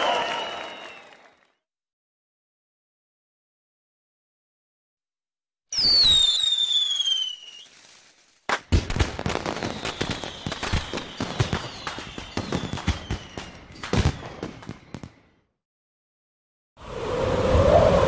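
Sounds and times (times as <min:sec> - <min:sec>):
firework whistle sliding down: 0:05.7 - 0:08.1, 0:09.5 - 0:13.4
fireworks crackling and banging: 0:05.8 - 0:15.3.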